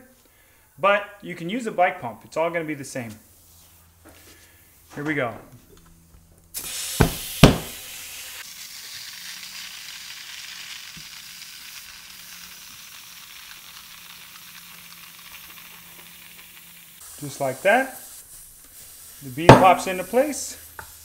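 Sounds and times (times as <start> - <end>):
compressed air hissing into tire: 6.5 - 21.0.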